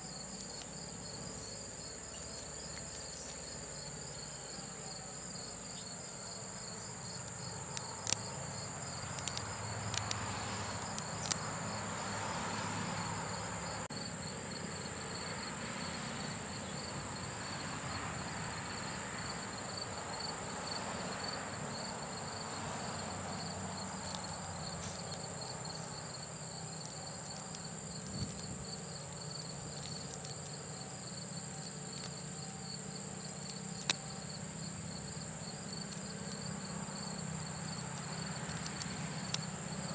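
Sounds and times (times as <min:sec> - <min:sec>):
insects chirping: 0:00.0 - 0:39.9
sharp clicks of rubber strands: 0:07.2 - 0:11.5, 0:33.3 - 0:34.0.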